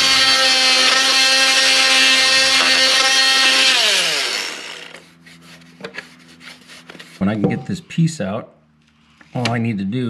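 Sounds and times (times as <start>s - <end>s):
power tool cutting trim: 0.0s - 5.1s
power tool motor running: 0.0s - 5.1s.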